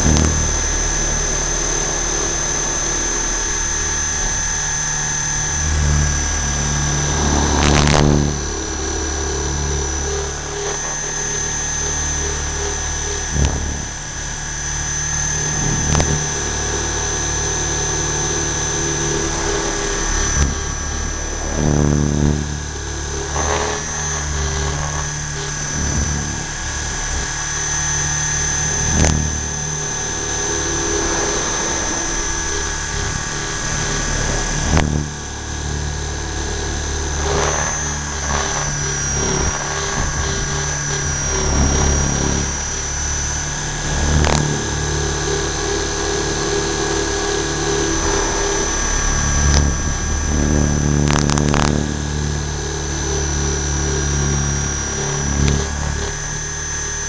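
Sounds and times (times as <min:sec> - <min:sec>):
model helicopter whine and rotor thrum: 0:00.0 - 0:57.0.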